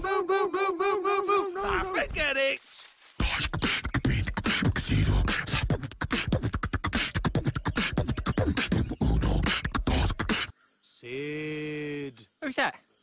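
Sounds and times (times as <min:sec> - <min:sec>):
beatboxing voice: 0:03.2 - 0:10.5.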